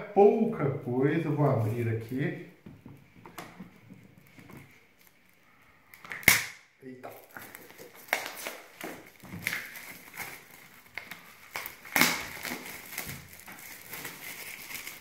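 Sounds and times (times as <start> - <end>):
plastic wrap crinkling: 3.5 - 15.0.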